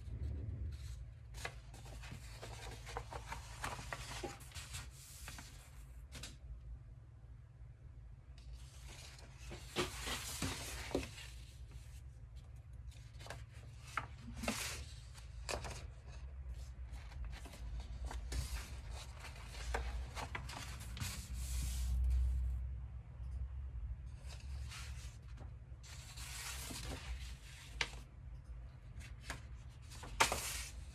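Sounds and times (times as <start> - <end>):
steady low hum: 0.0 - 30.9
paper rustling and crinkling: 0.3 - 6.4, 8.5 - 22.3, 24.2 - 28.1, 28.9 - 30.9
sharp paper crackles: 29.1 - 30.9.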